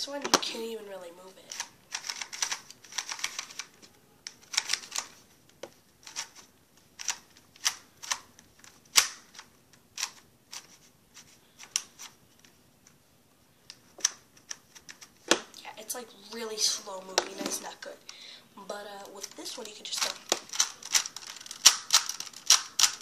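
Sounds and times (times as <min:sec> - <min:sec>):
plastic puzzle cube clicking: 0:01.5 - 0:10.7, 0:13.7 - 0:15.4, 0:19.2 - 0:23.0.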